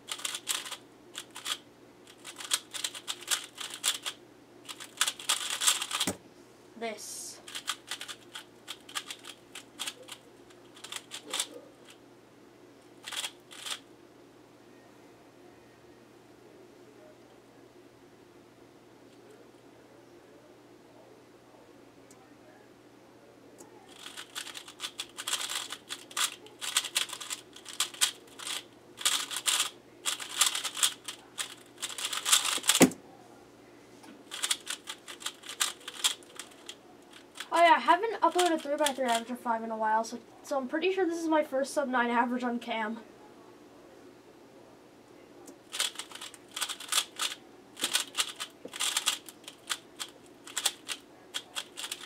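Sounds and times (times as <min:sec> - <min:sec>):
speed cube plastic clicks: 0:00.1 - 0:06.2, 0:07.5 - 0:11.5, 0:13.0 - 0:13.8, 0:23.9 - 0:33.0, 0:34.3 - 0:37.5, 0:38.3 - 0:39.2, 0:45.5 - 0:52.0.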